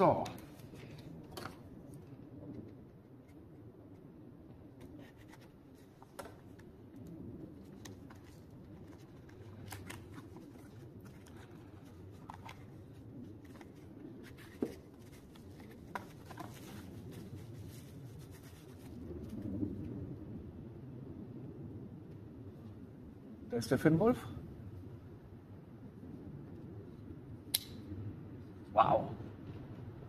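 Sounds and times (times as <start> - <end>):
cardboard and plastic rustling: 4.7 - 19.4
sharp click: 27.5 - 27.8.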